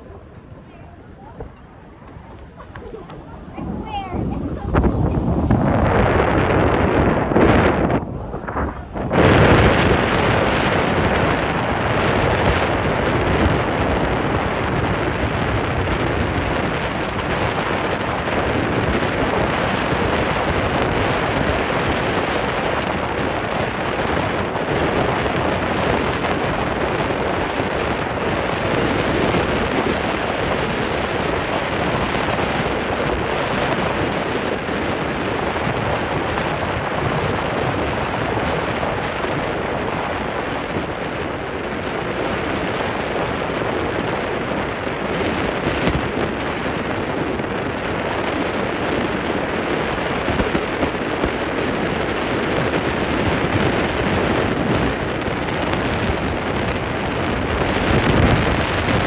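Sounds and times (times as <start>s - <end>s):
boat running noise: 0.0s - 59.0s
wind rushing over microphone: 0.0s - 59.0s.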